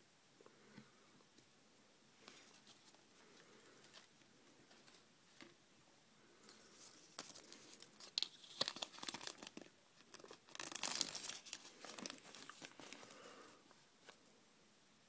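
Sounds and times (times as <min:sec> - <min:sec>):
paper crinkling: 0:06.5 - 0:13.4.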